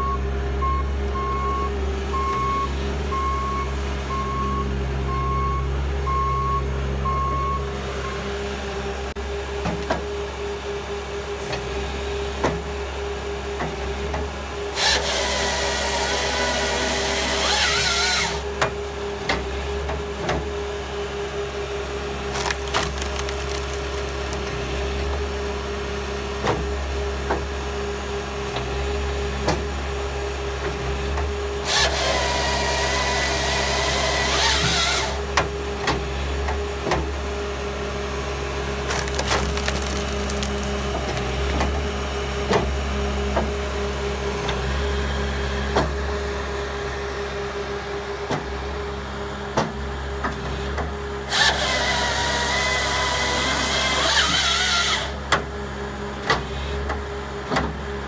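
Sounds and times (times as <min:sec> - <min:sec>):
saw cutting through log: 0:14.7 - 0:18.5, 0:22.3 - 0:24.8, 0:31.6 - 0:35.3, 0:38.9 - 0:41.6, 0:51.3 - 0:55.2
wood splitting and cracking: 0:22.2 - 0:25.3, 0:38.7 - 0:42.0.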